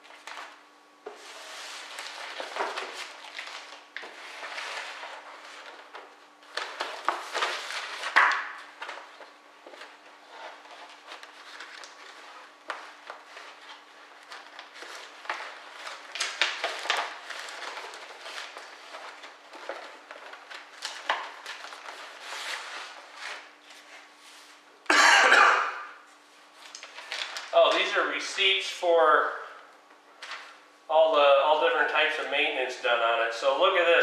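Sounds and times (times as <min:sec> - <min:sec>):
paper rustling and crinkling: 0:00.0 - 0:24.6, 0:26.5 - 0:28.0, 0:30.2 - 0:30.6.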